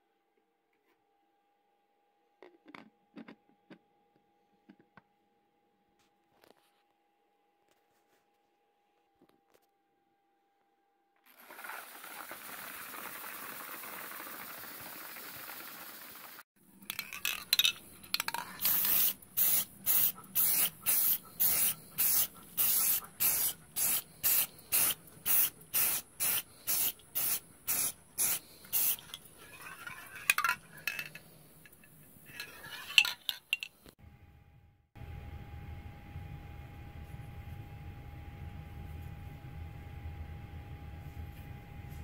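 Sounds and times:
spray bottle squirting: 18.4 - 29.2
steady hiss: 18.6 - 29.2.

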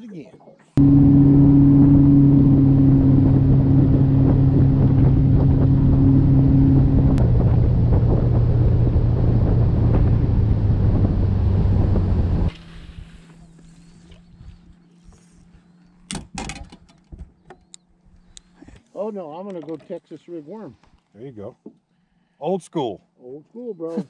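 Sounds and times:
wind buffeting microphone: 0.8 - 13.2
motorboat engine running: 0.8 - 18.6.

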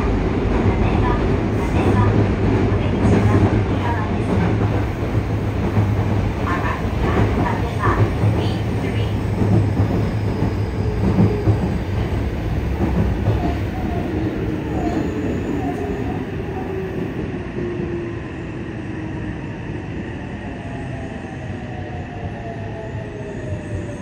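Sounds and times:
wheels rumbling on rail: 0.0 - 18.5.

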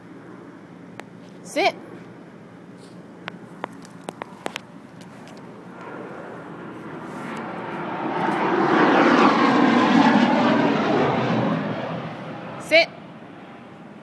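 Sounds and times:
engine passing by: 5.7 - 13.7.

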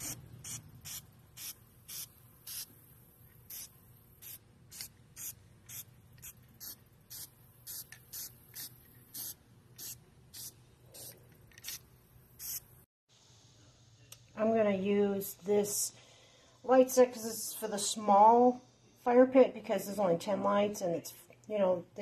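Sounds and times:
spray can hissing in spurts: 0.0 - 2.8, 3.4 - 12.7.

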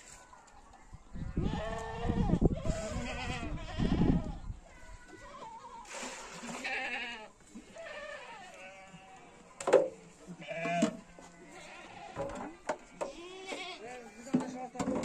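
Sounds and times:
goats bleating: 1.3 - 5.9, 6.5 - 9.4, 10.3 - 14.2.

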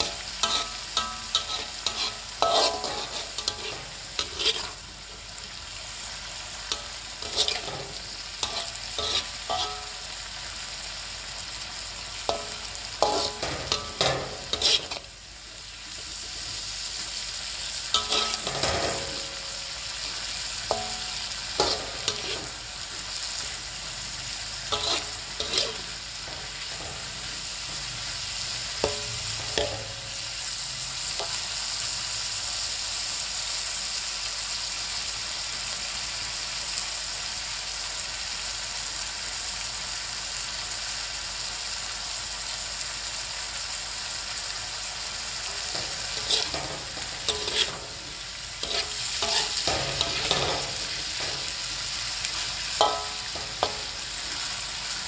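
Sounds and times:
metal spatula scraping a wok: 0.0 - 10.4, 12.1 - 15.2, 17.7 - 30.5, 45.4 - 55.0
food sizzling: 0.0 - 55.0.

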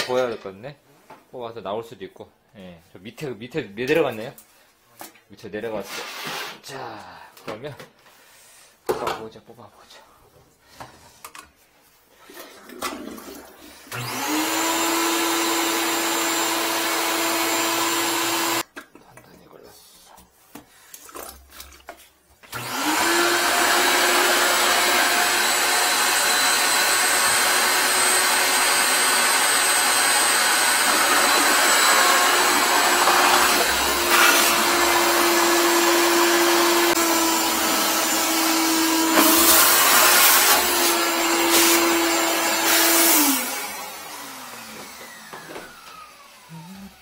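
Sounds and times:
vacuum hose sucking: 12.3 - 18.6, 22.5 - 46.5
wet-dry vacuum motor whining: 13.9 - 18.6, 22.5 - 47.0.

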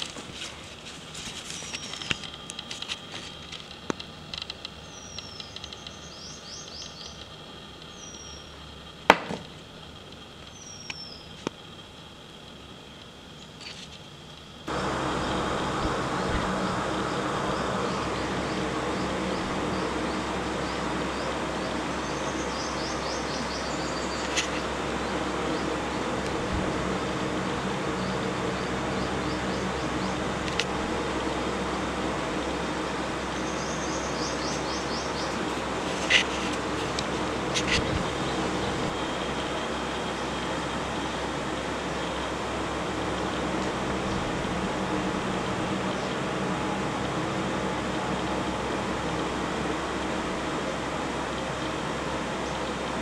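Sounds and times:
outdoor background hiss: 0.0 - 53.0
steady high hum: 0.0 - 53.0
small bird whistling: 4.8 - 7.2, 7.9 - 8.6, 10.5 - 11.4, 16.6 - 24.6.

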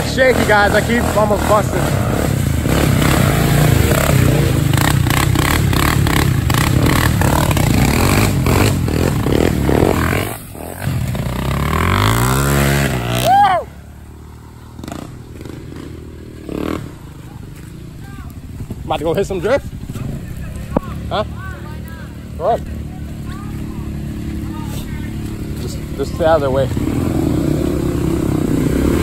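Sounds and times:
quad engine revving: 0.0 - 29.0.

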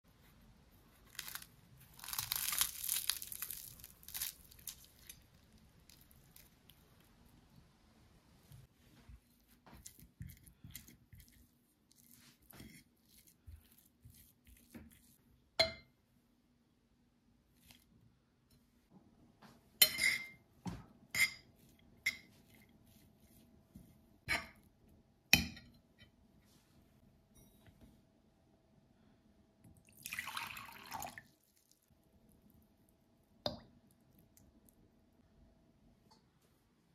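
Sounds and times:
pastry crackling as torn: 1.0 - 6.8.

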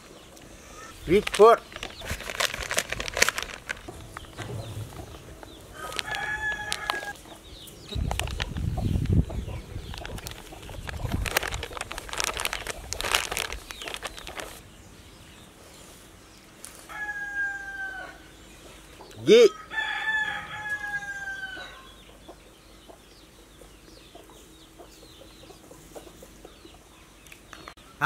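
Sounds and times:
plastic bag crinkling: 1.0 - 7.2, 8.0 - 8.7, 9.9 - 14.6
rooster crowing: 5.7 - 7.2, 16.9 - 18.3, 19.5 - 21.9.

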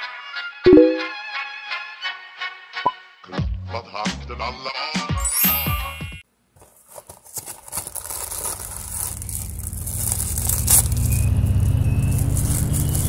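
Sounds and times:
plastic wrapping crinkling: 6.6 - 13.0.

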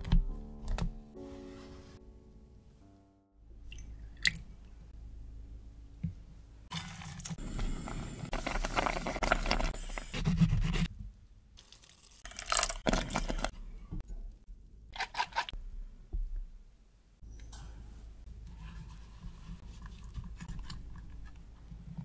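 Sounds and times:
juice dripping into glass bowl: 11.6 - 13.4.

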